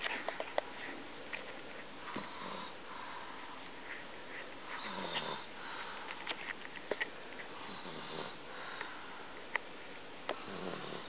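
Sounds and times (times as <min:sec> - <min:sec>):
person snoring: 0:10.4 - 0:11.0.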